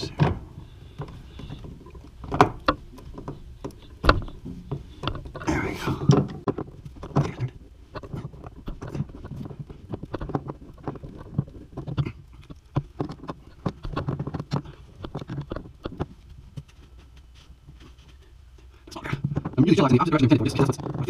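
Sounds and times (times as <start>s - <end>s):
dull low thuds: 0.0s - 17.8s.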